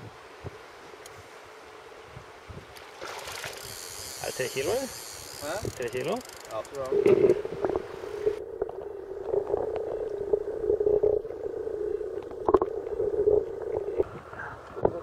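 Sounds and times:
muffled underwater river wash: 6.8 - 15.0
low hum: 6.9 - 14.9
underwater knocks: 7.0 - 7.8, 12.1 - 14.0.

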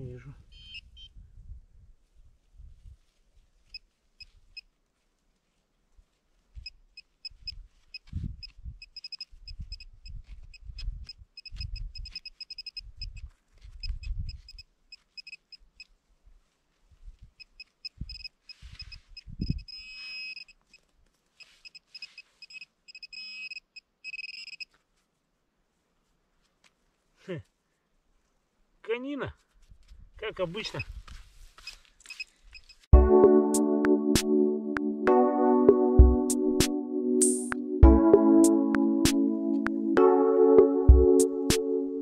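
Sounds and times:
metal detector beeping: 0.5 - 1.1, 8.8 - 9.9, 11.0 - 13.2, 14.3 - 15.7, 17.4 - 20.8, 21.4 - 24.7.

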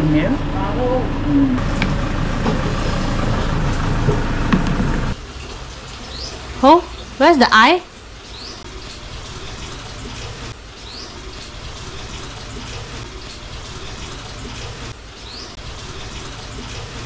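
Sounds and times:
tap water running: 1.6 - 17.0.

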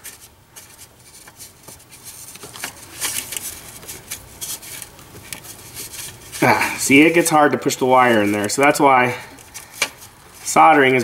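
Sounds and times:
wire scratching in a hole: 0.0 - 8.8.

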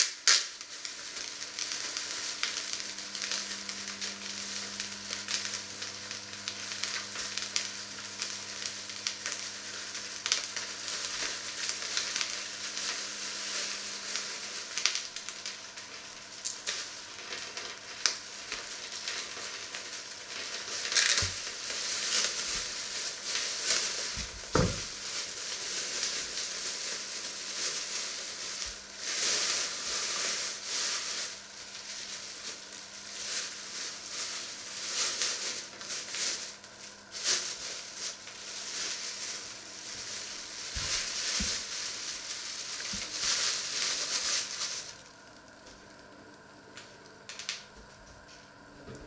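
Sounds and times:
food sizzling in a pot: 0.0 - 48.6
plastic bag rustling: 0.3 - 46.2.

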